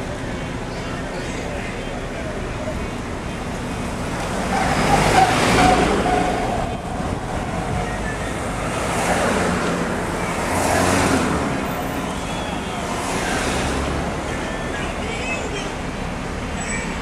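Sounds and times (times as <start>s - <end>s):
cars passing close: 0.0s - 17.0s
road traffic from inside car: 0.0s - 17.0s.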